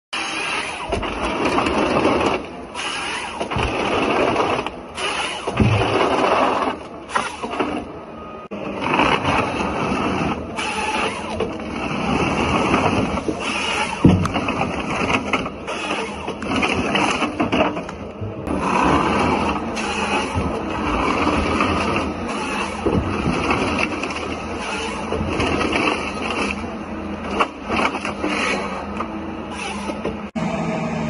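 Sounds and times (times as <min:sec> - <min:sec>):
chain saw cutting through logs: 0:00.1 - 0:07.6, 0:08.7 - 0:17.5, 0:18.5 - 0:26.6, 0:29.5 - 0:30.1
feed rollers driving stems: 0:00.1 - 0:30.4
machine engine under load: 0:00.1 - 0:31.0.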